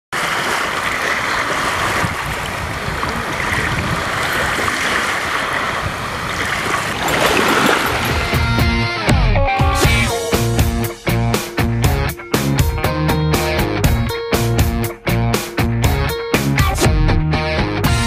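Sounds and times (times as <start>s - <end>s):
waves lapping on shore: 0.1s - 8.6s
guitar rock music: 8.1s - 18.0s.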